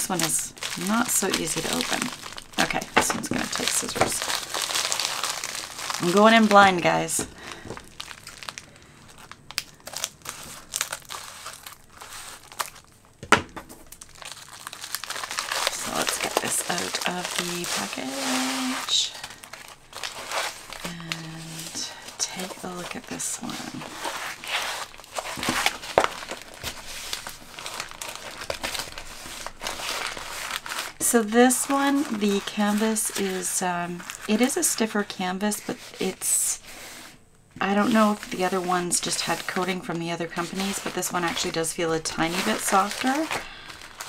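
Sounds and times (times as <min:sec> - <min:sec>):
plastic mailer crackling: 0:00.0 - 0:36.8, 0:37.6 - 0:44.0
plastic packaging crinkling: 0:00.0 - 0:44.0.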